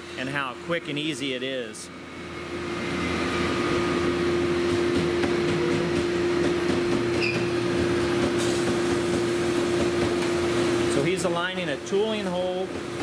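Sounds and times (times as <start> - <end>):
workshop machinery humming: 0.0 - 13.0
high squeak: 7.2 - 7.6.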